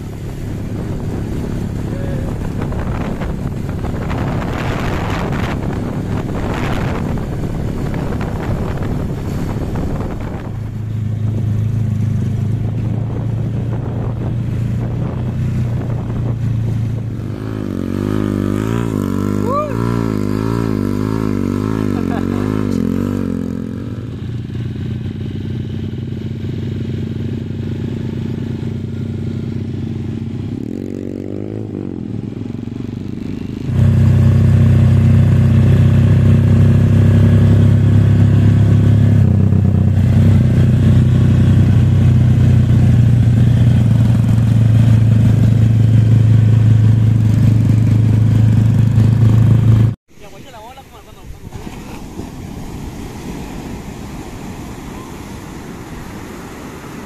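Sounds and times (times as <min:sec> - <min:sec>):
dirt bike engine revving: 0:00.6 - 0:10.5, 0:16.3 - 0:50.0.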